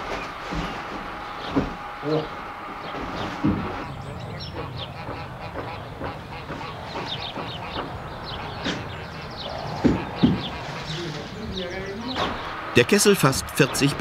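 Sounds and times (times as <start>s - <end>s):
heavy thumps: 0.0s - 12.7s
small birds chirping: 0.0s - 14.0s.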